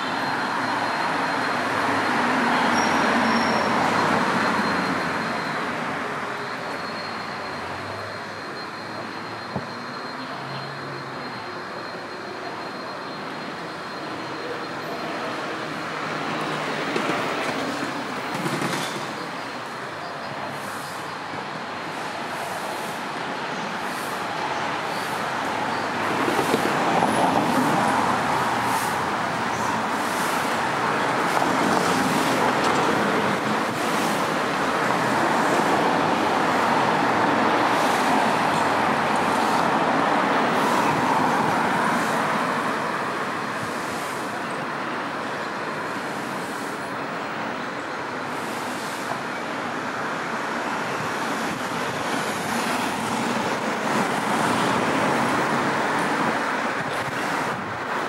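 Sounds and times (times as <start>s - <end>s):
city traffic roar: 0.0s - 58.0s.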